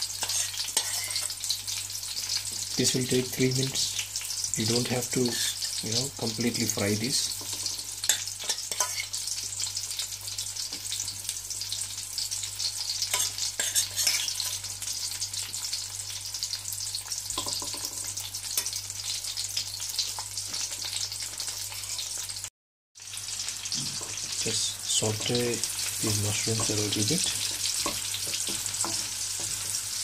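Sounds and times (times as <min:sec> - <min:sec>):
food sizzling in hot oil: 0:00.0 - 0:30.0
wooden spatula tapping and scraping: 0:26.5 - 0:29.8.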